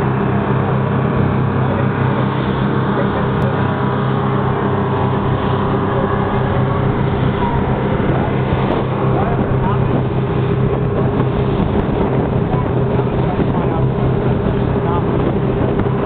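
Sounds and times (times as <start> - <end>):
boat engines humming: 0.0 - 16.0
rushing boat wake: 0.0 - 16.0.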